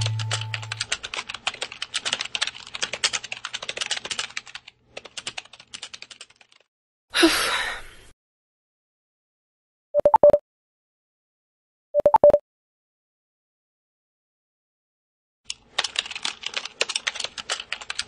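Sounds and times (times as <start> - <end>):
typing on laptop keyboard: 0.0 - 6.7, 15.5 - 18.0.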